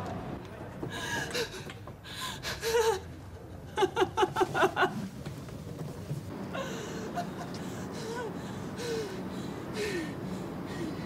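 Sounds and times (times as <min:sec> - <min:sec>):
woman crying and sobbing: 0:06.5 - 0:10.3.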